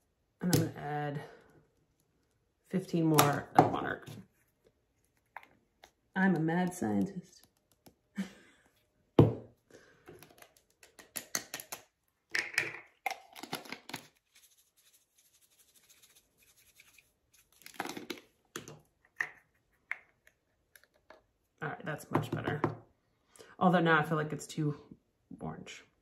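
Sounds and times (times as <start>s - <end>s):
plastic jars clicking and rattling: 10.1s - 14.2s, 17.6s - 21.2s.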